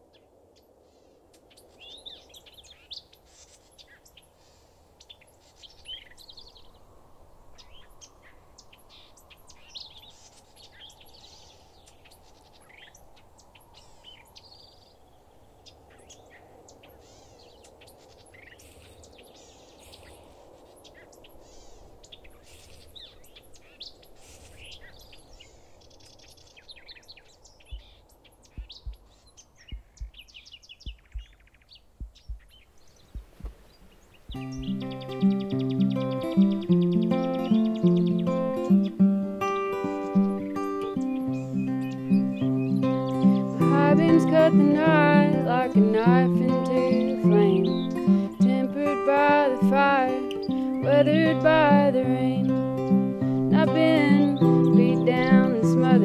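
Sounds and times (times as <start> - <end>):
birds chirping and trilling: 0.1 - 6.9, 7.5 - 56.0
soft low thumps: 27.7 - 34.8.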